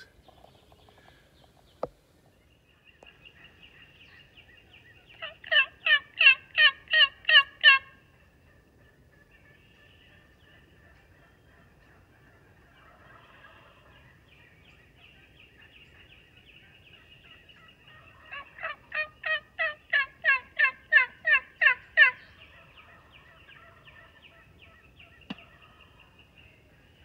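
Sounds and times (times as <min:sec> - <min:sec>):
wild turkey yelping: 0:04.7 - 0:14.2, 0:14.9 - 0:27.0.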